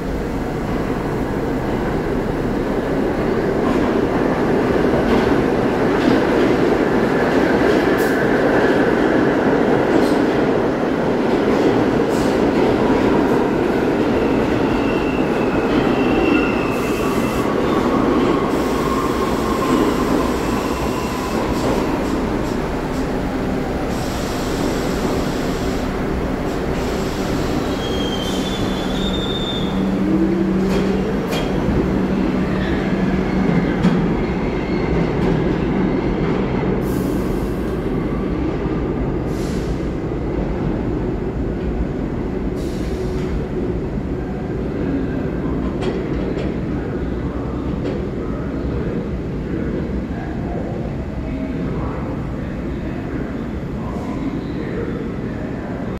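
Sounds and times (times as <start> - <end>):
subway train rumbling: 0.0 - 55.9
high wheel squeals: 27.5 - 29.9.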